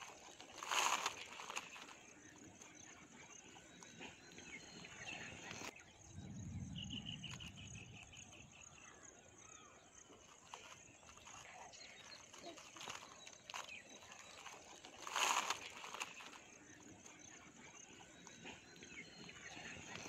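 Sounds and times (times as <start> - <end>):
potato chips crackling and rustling: 0.0 - 2.0, 10.3 - 20.0
bird trill: 0.0 - 20.0.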